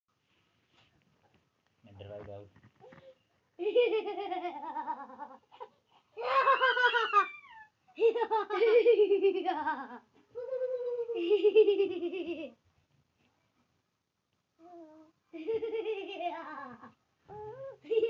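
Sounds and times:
child giggling: 3.6s - 12.6s, 15.4s - 18.0s.

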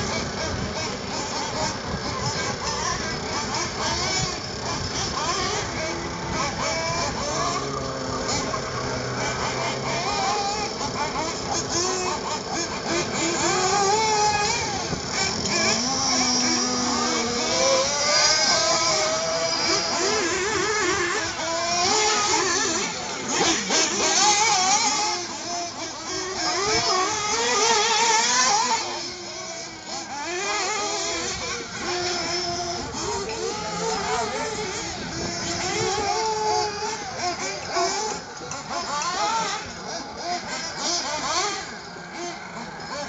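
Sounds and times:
rc buggy engines whining: 0.0s - 43.0s.

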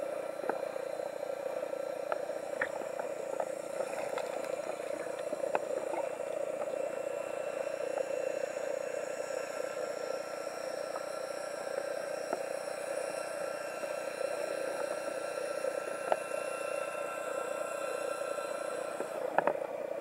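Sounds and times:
muffled underwater noise: 0.0s - 20.0s.

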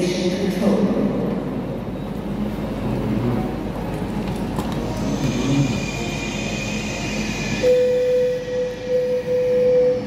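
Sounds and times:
crowd hum: 2.3s - 7.6s
faint indistinct voices: 2.7s - 7.6s
high-pitched whine: 4.6s - 10.0s.

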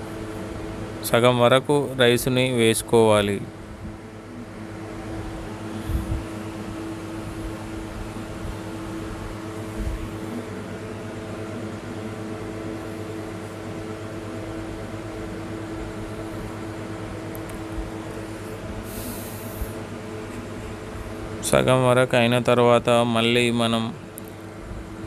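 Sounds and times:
mechanical hum with tones: 0.0s - 25.0s
short hiss: 18.9s - 19.8s.

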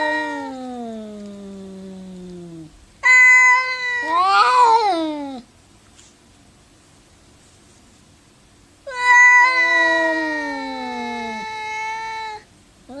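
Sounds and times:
cats yowling: 0.0s - 5.5s, 8.9s - 13.0s.

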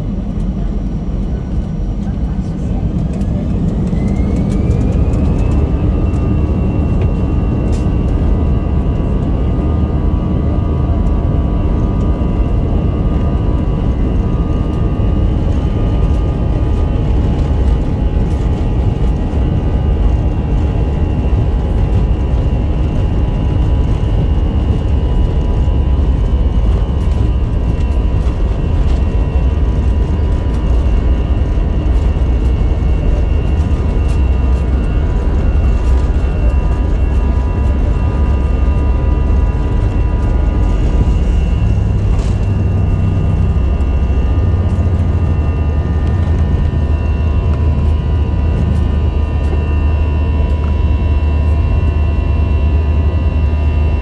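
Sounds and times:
jet engines whining and rumbling: 0.0s - 54.0s.

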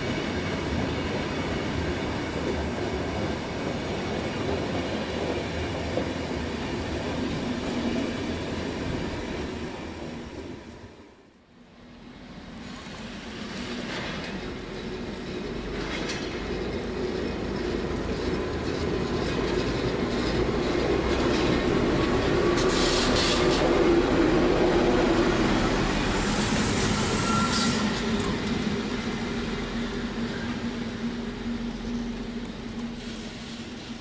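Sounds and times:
train wheels rumbling: 0.0s - 10.8s, 12.0s - 34.0s
high squeals from train: 22.3s - 24.2s, 25.9s - 28.7s, 32.8s - 34.0s.

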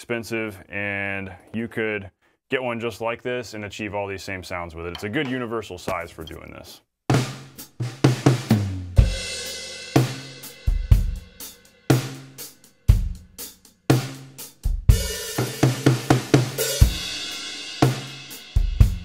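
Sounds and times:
drum kit rock groove: 4.9s - 6.5s, 7.1s - 19.0s.

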